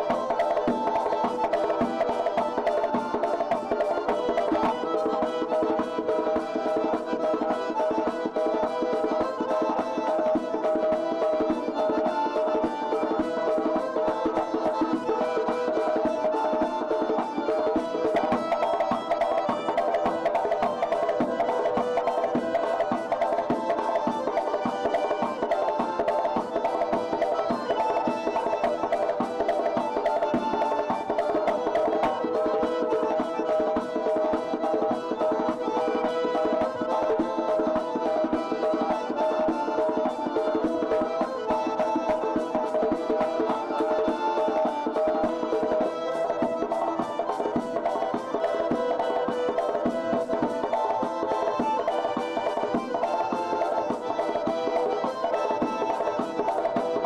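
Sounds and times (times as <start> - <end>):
fast clacking percussion beat: 0.0 - 57.0
sustained folk melody: 0.0 - 57.0.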